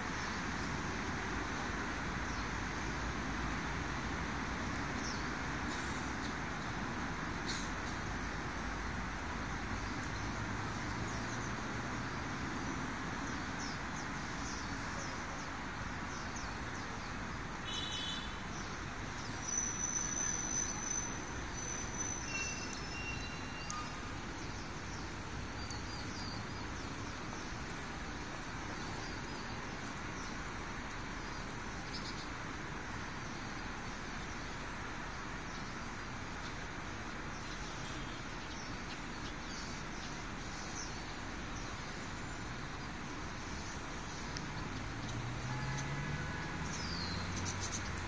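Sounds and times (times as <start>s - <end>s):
outdoor background noise: 0.0s - 48.0s
bird chirps: 17.6s - 27.5s.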